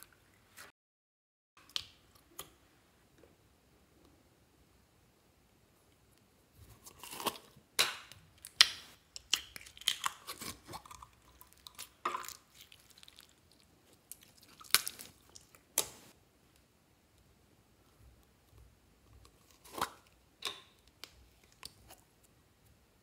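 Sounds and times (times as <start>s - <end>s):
slime squelching and popping: 7.2s - 16.1s.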